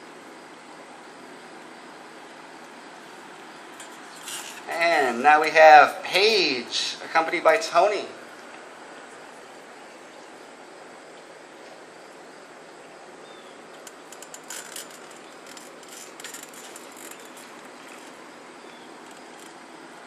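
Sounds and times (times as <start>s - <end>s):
outdoor background hiss: 0.0s - 20.0s
dry clicking: 13.7s - 19.6s.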